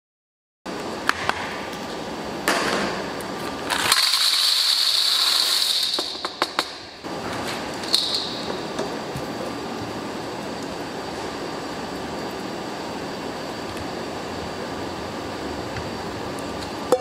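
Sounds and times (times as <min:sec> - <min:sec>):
room hum: 0:00.7 - 0:17.0
nuts rattling into metal bowl: 0:03.7 - 0:06.2.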